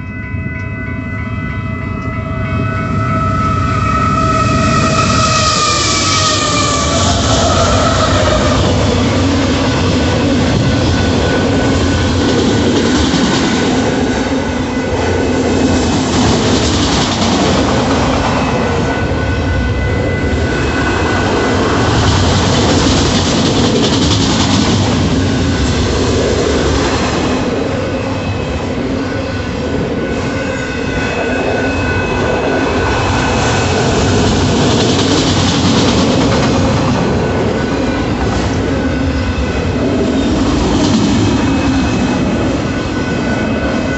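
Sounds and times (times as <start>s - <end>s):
freight train wheels clattering: 2.8s - 43.9s
high wheel squeal: 3.1s - 12.2s.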